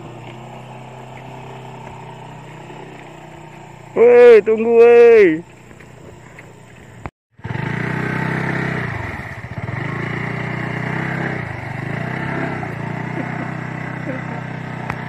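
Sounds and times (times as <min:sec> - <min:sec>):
motor scooter engine revving: 0:00.0 - 0:04.2, 0:07.4 - 0:15.0.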